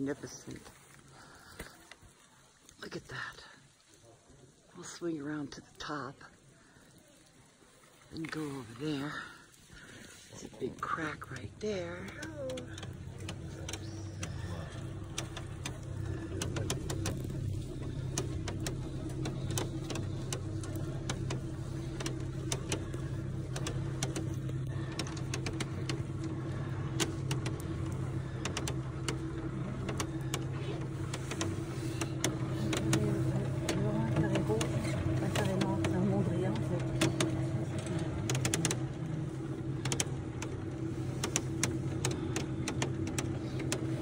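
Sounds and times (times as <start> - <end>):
electric motor humming: 10.6 - 44.0
metal frame clicks and rattles: 11.3 - 44.0.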